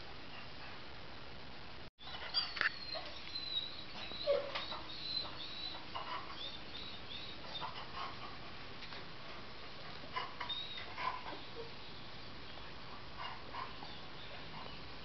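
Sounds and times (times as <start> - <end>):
dogs barking and whining: 2.0 - 15.0.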